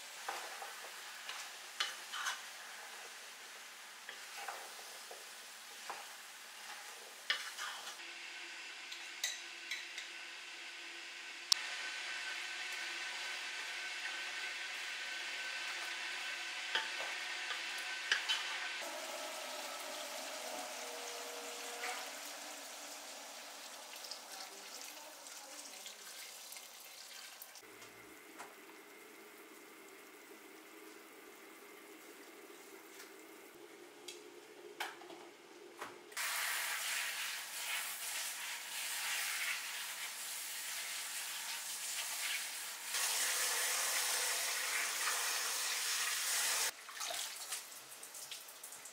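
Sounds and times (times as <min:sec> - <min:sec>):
meat sizzling in hot oil: 0:11.6 - 0:24.9, 0:36.2 - 0:46.8
water pouring from faucet sprayer: 0:36.2 - 0:48.4.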